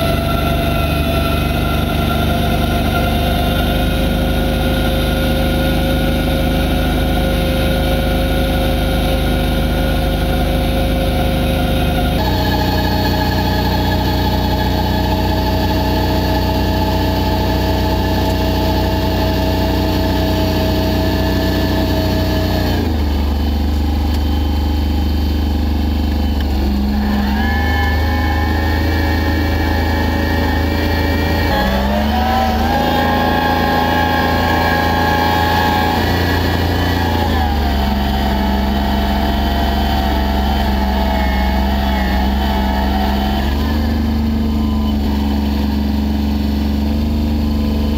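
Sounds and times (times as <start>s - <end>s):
tractor diesel engine running: 0.0s - 47.9s.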